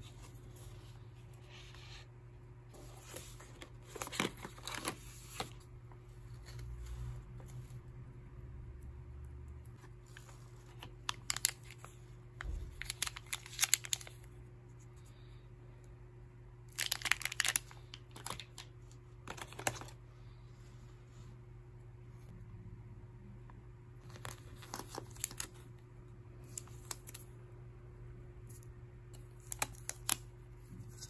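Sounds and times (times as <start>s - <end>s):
plastic packaging crinkling: 10.0s - 14.3s, 16.7s - 20.0s, 24.0s - 25.7s.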